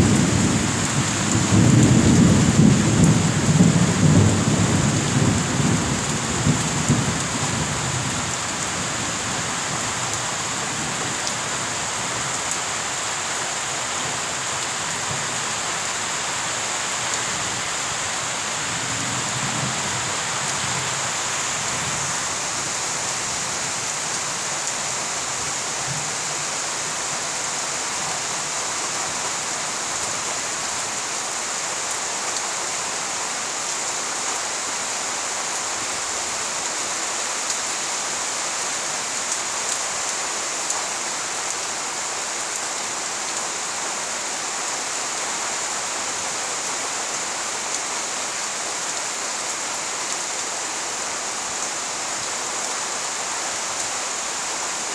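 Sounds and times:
steady rain: 0.0s - 54.9s.

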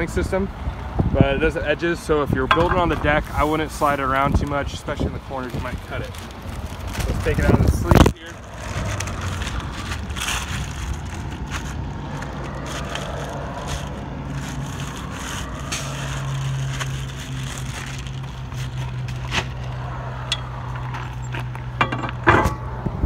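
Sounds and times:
plastic sleeve crinkling and scraping: 2.7s - 19.9s.

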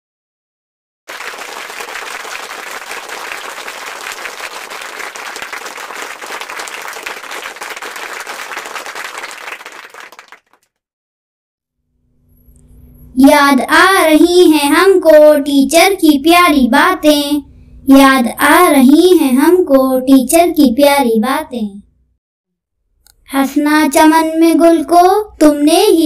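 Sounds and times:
crowd applauding: 1.1s - 10.7s.

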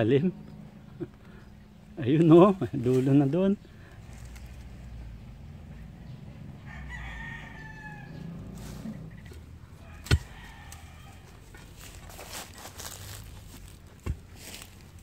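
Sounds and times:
rooster crowing: 6.6s - 9.0s, 9.7s - 11.5s.

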